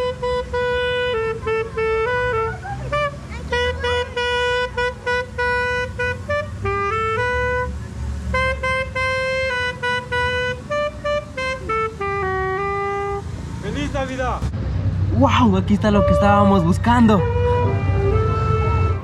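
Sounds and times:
saxophone playing slow melody: 0.0s - 13.3s, 17.1s - 19.0s
street and traffic noise: 0.0s - 19.0s.

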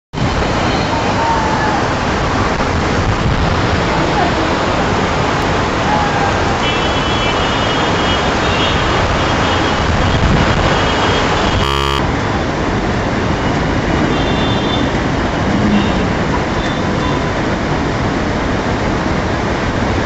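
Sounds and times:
heavy rain pouring: 0.2s - 11.1s
distant car horns: 10.9s - 12.1s
buzz-like glitch: 11.5s - 12.1s.

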